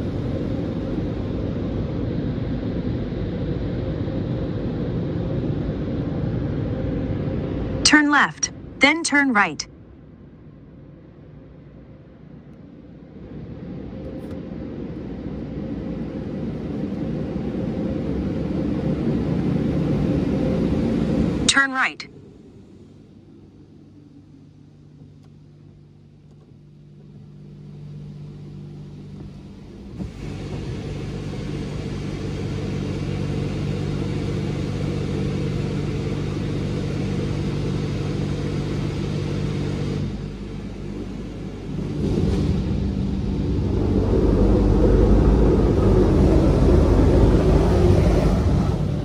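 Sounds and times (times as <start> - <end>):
low pump hum: 22.1 - 49.0.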